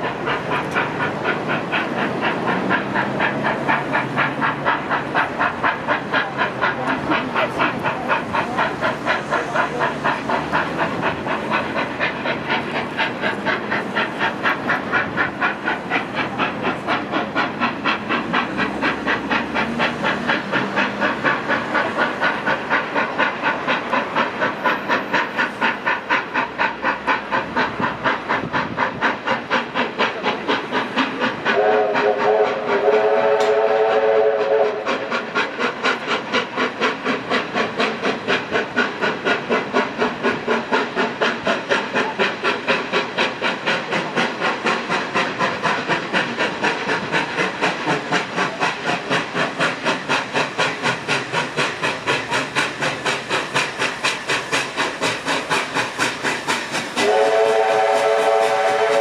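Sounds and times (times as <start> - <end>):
steam locomotive exhaust beats: 0.0 - 59.0
steam whistle blast: 31.6 - 34.9, 57.0 - 59.0.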